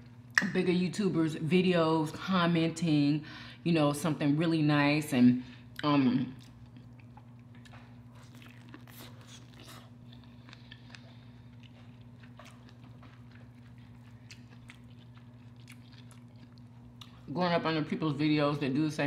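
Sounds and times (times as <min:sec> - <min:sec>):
crunchy bites and chewing: 0:06.4 - 0:17.3.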